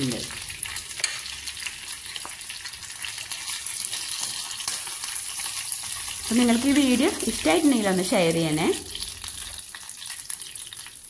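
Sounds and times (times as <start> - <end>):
oil sizzling in a frying pan: 0.0 - 11.0.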